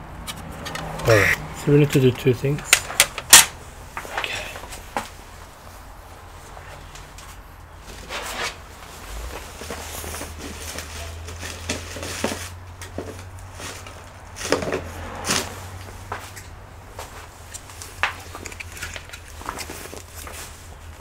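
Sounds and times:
tools clicking and rustling: 0.2 - 1.4, 17.5 - 20.6.

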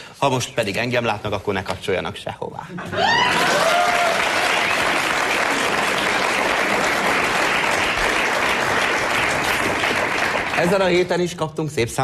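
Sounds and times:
audience applauding: 3.0 - 11.3.

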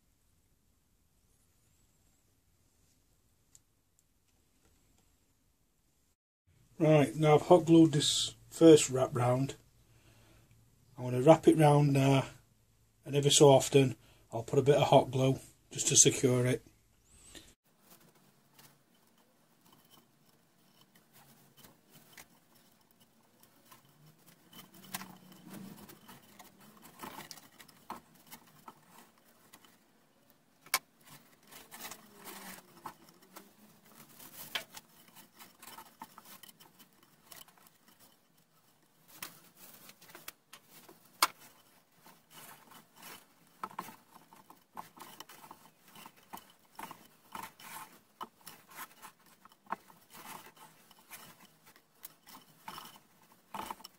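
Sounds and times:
rope scraping against wood: 17.7 - 53.9.

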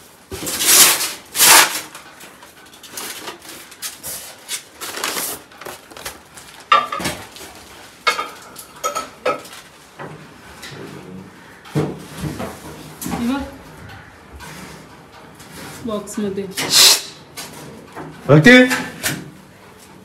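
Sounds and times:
metal cookware clinking and clattering: 6.7 - 7.2, 8.0 - 9.6.

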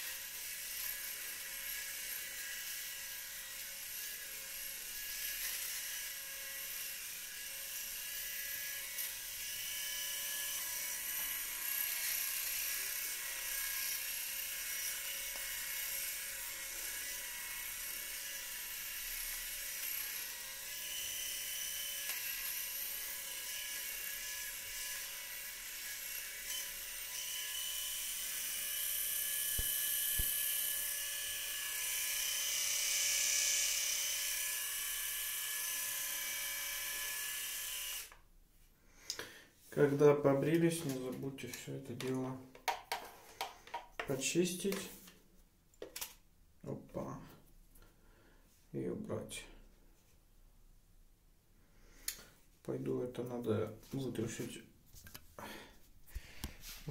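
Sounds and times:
electric shaver whining hum: 0.0 - 38.2.

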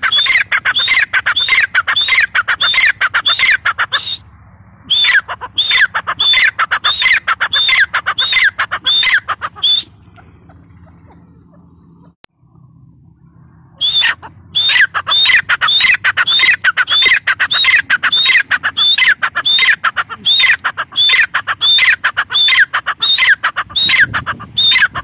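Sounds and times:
francolin calling harsh notes: 13.2 - 25.0.

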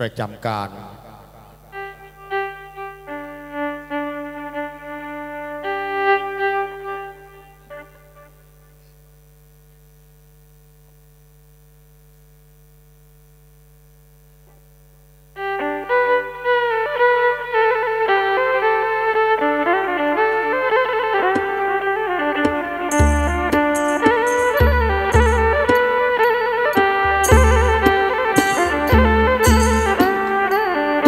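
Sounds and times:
instrumental music with melody: 1.8 - 8.4, 15.4 - 31.0
held tone: 22.4 - 31.0.

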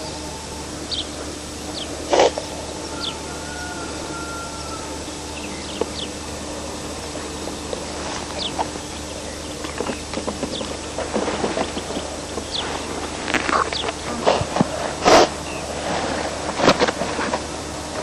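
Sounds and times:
long even bird call: 0.0 - 11.0
birds chirping: 0.0 - 16.5
steady hiss: 0.0 - 18.0.

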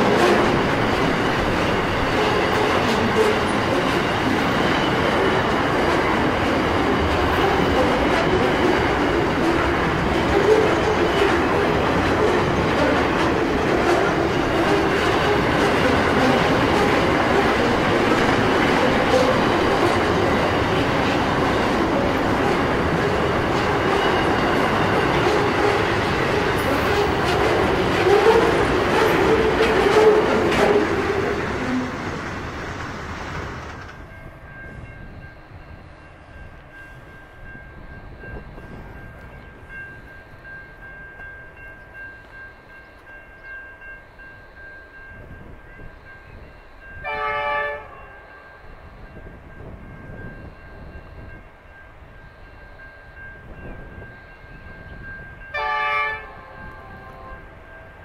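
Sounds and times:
train wheel squeal: 0.0 - 32.2
freight train wagons rolling: 0.0 - 34.9
locomotive horn blasts: 25.0 - 31.0, 47.0 - 48.7, 55.5 - 57.7.

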